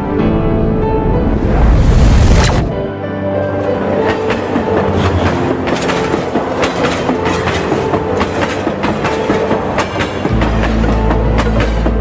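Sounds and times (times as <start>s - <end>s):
train rumble: 3.6s - 12.0s
train wheels clacking on rail joints: 3.7s - 12.0s.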